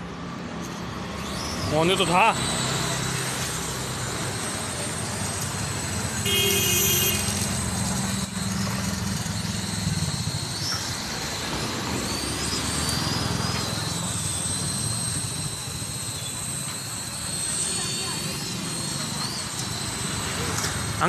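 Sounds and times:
street traffic: 0.0s - 21.0s
toy drone motors buzzing: 0.1s - 21.0s
vehicle horn: 6.2s - 7.4s.

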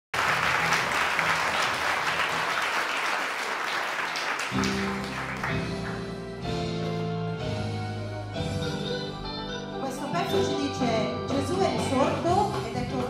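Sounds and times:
applause: 0.1s - 6.2s
instrumental gospel chords: 4.5s - 13.0s.

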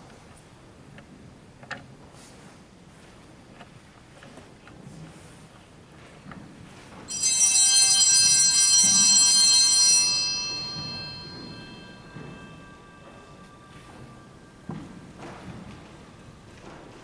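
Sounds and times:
altar bells ringing: 7.1s - 17.0s.

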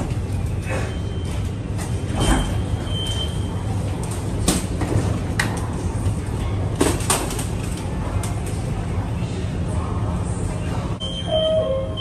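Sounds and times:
steady hum of stopped train: 0.0s - 12.0s
short high beep: 11.0s - 12.0s.

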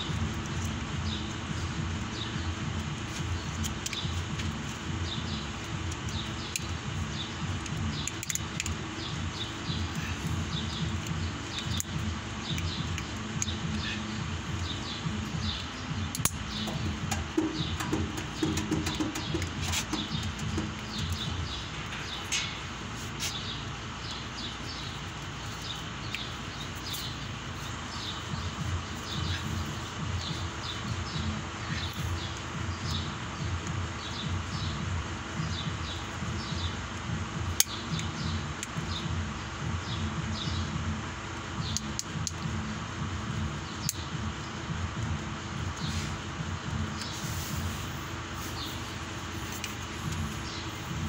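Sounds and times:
small birds chirping: 0.0s - 51.0s
steady low rumble: 0.0s - 51.0s
sharp clicks: 0.1s - 27.4s, 41.6s - 42.6s, 43.4s - 44.2s.

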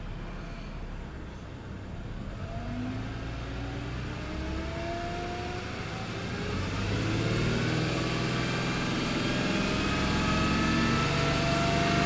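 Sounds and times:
car engine revving: 2.2s - 12.0s.

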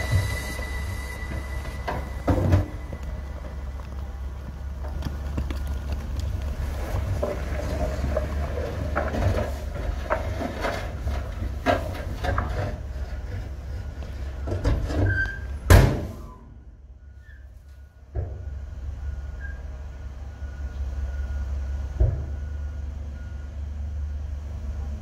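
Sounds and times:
loud bang: 0.0s - 3.8s
soil and rocks sliding: 0.0s - 16.3s
diesel engine rumbling: 0.0s - 25.0s.

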